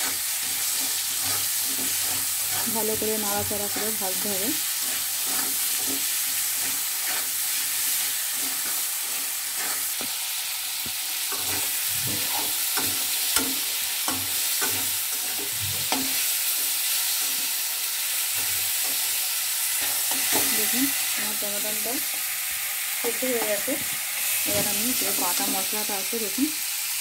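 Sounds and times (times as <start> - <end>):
metal spatula scraping pan: 0.0 - 10.0, 11.2 - 20.8
vegetables sizzling in hot oil: 0.0 - 27.0.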